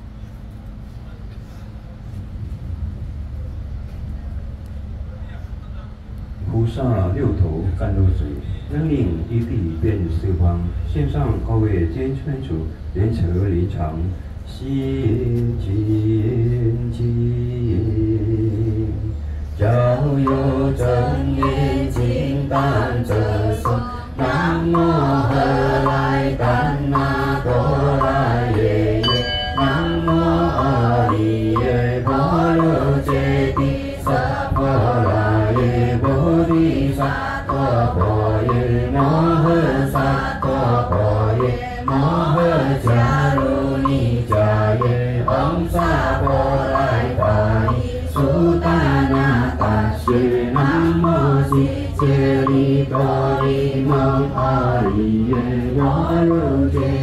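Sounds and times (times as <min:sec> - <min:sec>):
group chanting in unison: 0:19.6 - 0:57.0
small bell ringing: 0:29.0 - 0:30.8.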